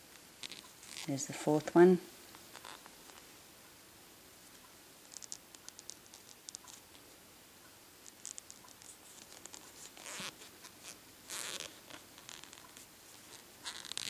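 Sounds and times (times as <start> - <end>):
crochet hook clicks and scratches: 0.4 - 1.1, 2.4 - 3.2, 5.0 - 7.1, 8.0 - 14.0.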